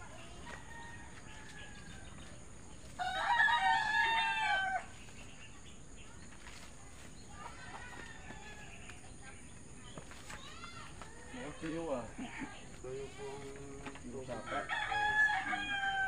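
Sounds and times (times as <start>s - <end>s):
rooster crowing: 3.0s - 4.9s, 14.4s - 16.0s.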